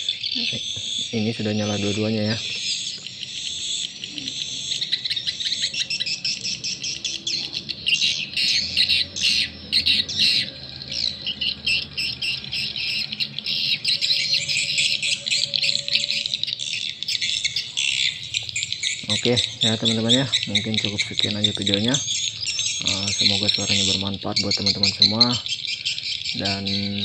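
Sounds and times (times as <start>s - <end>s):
recorded bird twittering: 0.0s - 27.0s.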